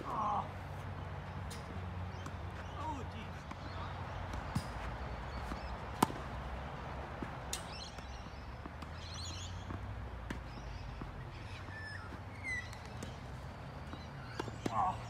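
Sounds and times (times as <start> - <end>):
birds chirping: 0.0 - 15.0
racket hitting tennis ball: 4.3 - 6.6.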